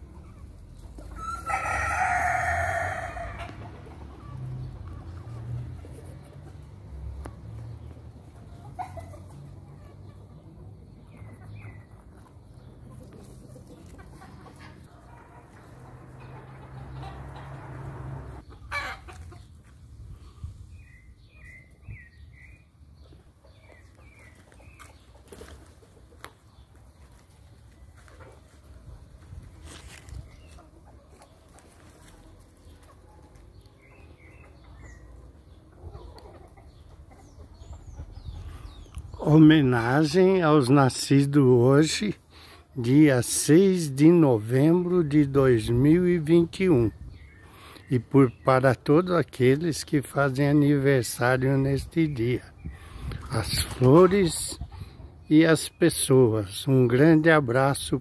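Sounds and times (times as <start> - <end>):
rooster crowing: 1.2 - 3.6.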